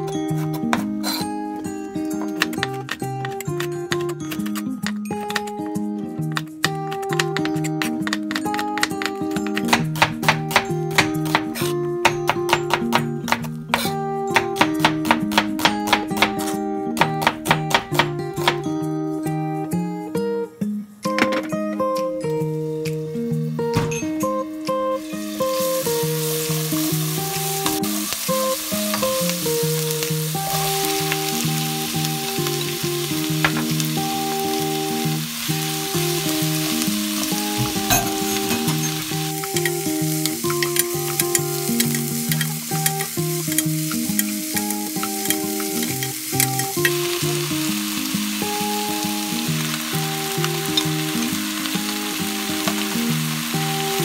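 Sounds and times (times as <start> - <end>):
background music: 0.0 - 54.0
oil sizzling in a wok: 24.6 - 54.0.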